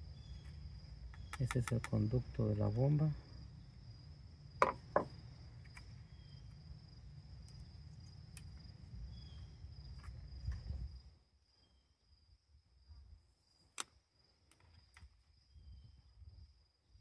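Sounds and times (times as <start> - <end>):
sharp plastic clicks: 1.1 - 2.0, 13.7 - 15.1.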